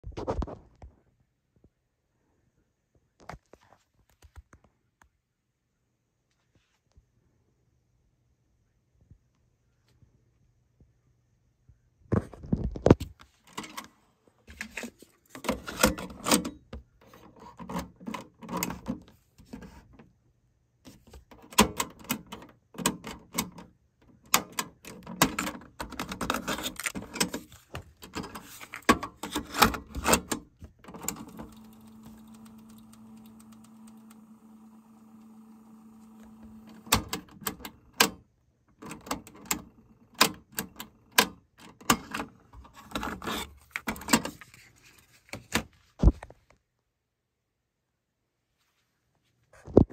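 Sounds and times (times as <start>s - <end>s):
transport keys clicking: 28.0s - 34.2s
tape mechanism humming: 28.0s - 38.2s
cassette doors clacking: 36.1s - 38.2s.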